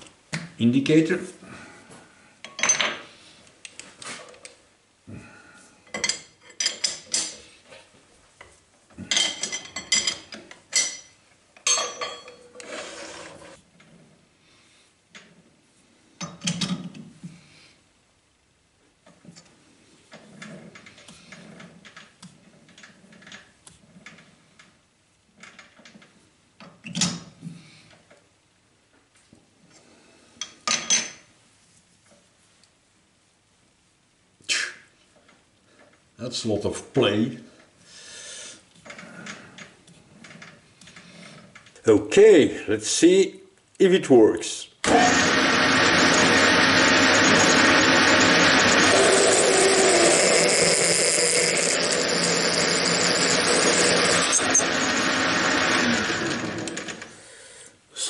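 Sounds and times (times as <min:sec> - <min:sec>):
drill cutting metal: 0:44.9 - 0:57.1
metal lathe droning: 0:44.9 - 0:57.1.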